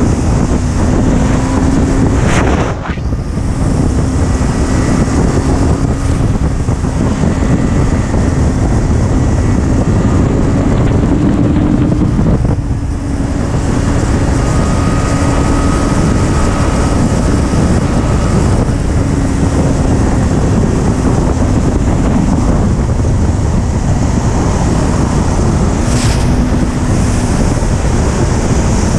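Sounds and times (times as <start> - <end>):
motorcycle engine running: 0.0 - 28.9
wind rushing over microphone: 0.0 - 28.9.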